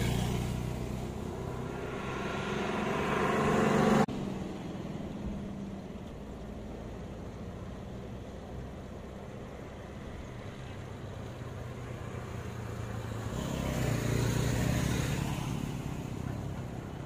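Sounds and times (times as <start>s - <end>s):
loud engine drone: 0.0s - 4.5s.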